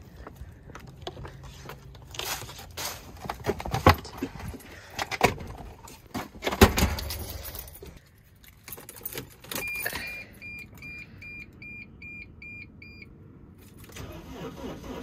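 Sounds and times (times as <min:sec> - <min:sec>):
keys jangling: 0:07.0 - 0:10.0
dashboard warning chime beeping: 0:09.6 - 0:13.1.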